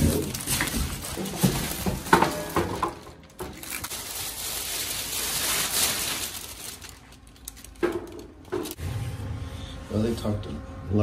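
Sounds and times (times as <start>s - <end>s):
plastic sheet rustling and crinkling: 0.0s - 8.8s.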